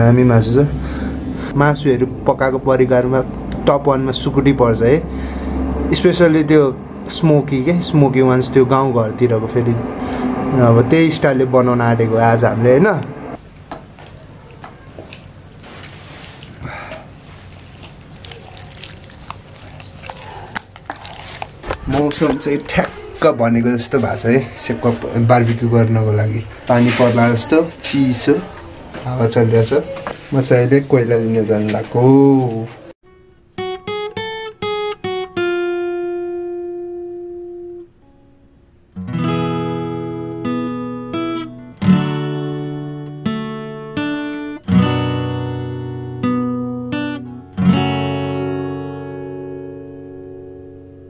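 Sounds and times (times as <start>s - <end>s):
acoustic guitar playing: 0.0s - 20.1s, 33.0s - 51.0s
wet squishing of meat: 13.4s - 23.2s.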